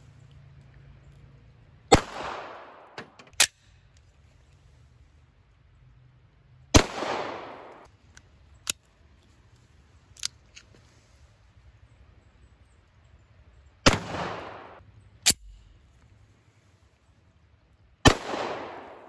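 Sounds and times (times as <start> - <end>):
handgun shots echoing: 1.9 - 3.6, 6.8 - 7.9, 13.9 - 15.6, 18.1 - 19.0.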